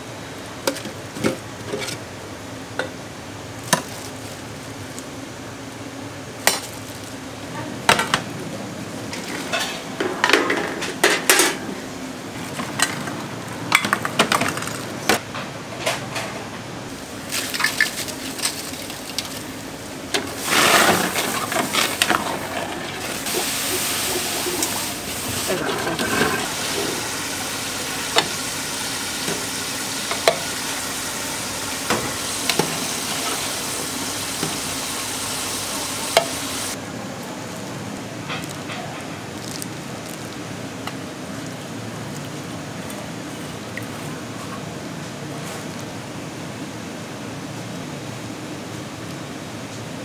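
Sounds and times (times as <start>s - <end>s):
dishes and utensils clinking: 9.1s - 11.6s.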